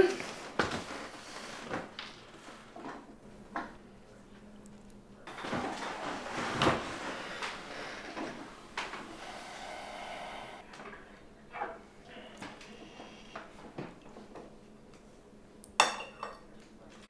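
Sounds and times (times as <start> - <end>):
knocks and clinks at table: 15.8 - 16.4.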